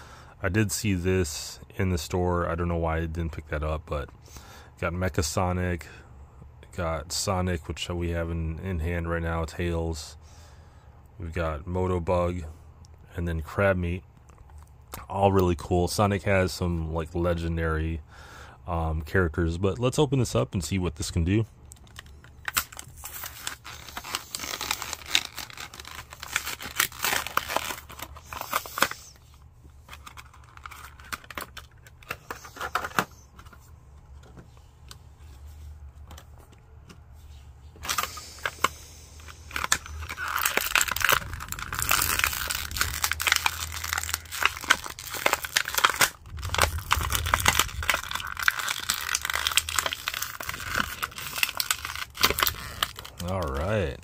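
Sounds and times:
plastic packaging crinkling: 21.8 - 29.2, 29.8 - 33.1, 37.8 - 54.0.

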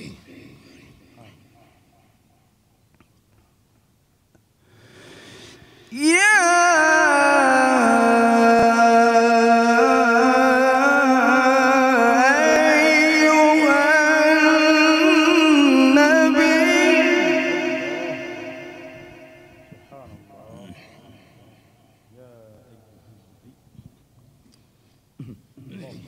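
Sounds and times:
man reciting melodically: 5.9 - 21.5.

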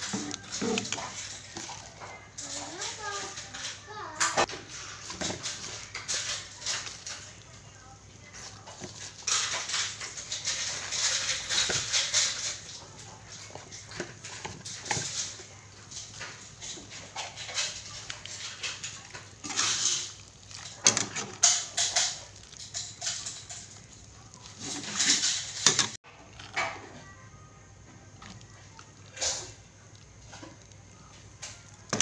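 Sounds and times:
gravy simmering: 0.0 - 32.0
metal ladle scraping a pot: 8.5 - 26.8.

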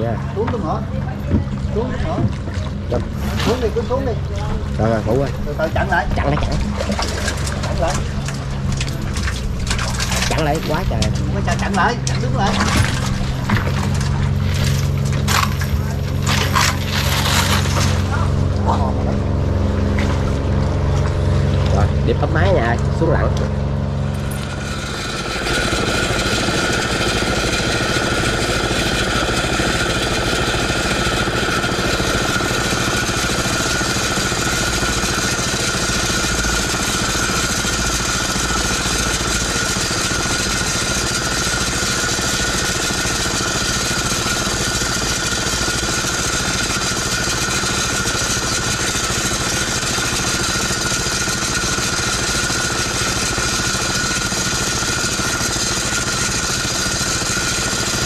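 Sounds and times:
high whine: 0.0 - 42.3
boat engine running: 0.0 - 58.0.

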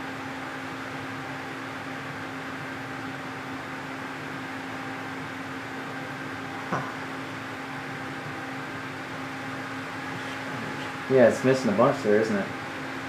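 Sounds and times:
steady mechanical hum: 0.0 - 13.0.

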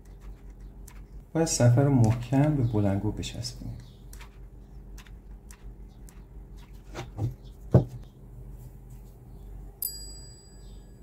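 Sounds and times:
thin high ringing: 9.8 - 11.0.

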